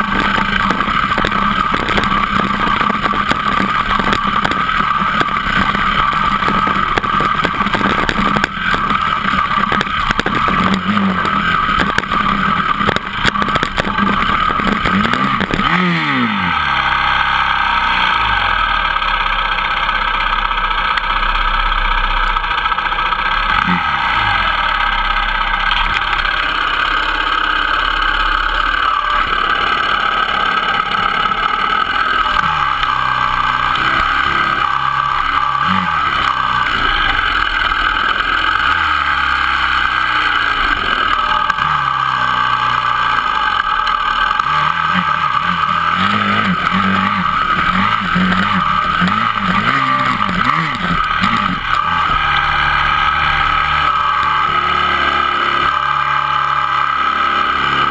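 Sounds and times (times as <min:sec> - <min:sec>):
rocks knocking under wheels: 0:00.0 - 0:17.0, 0:29.0 - 0:54.1
dirt bike engine running: 0:00.0 - 0:57.9.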